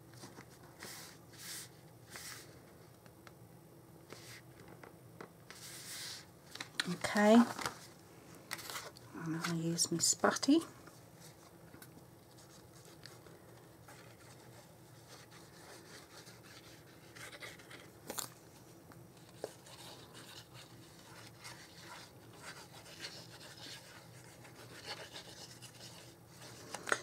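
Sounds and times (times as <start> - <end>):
paper rustling: 5.5 - 7.9.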